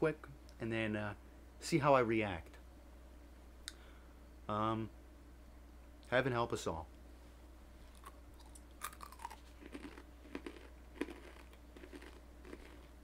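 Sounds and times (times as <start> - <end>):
person chewing crunchy food: 7.9 - 13.0.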